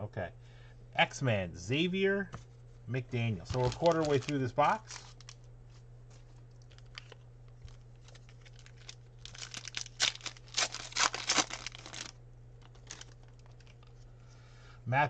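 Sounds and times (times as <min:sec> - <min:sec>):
foil wrapper tearing and crinkling: 0:03.4 - 0:05.4, 0:06.6 - 0:14.0.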